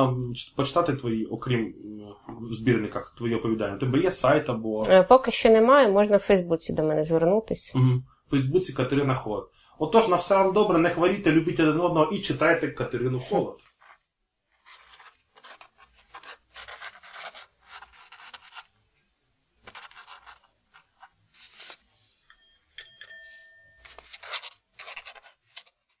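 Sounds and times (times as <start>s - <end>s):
pen scratching on paper: 14.6s - 18.7s, 19.6s - 21.8s, 24.0s - 26.0s.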